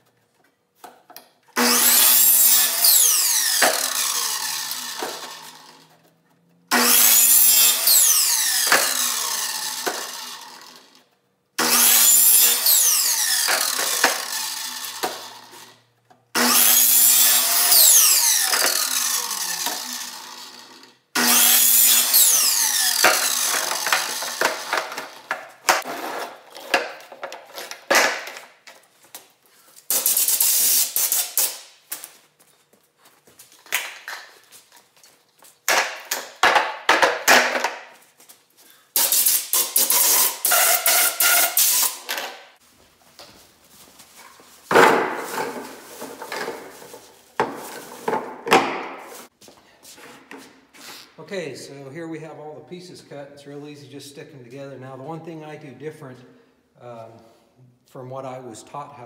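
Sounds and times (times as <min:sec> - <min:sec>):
miter saw cutting plastic pipe: 0:01.5 - 0:26.9, 0:29.9 - 0:31.7, 0:38.9 - 0:42.5.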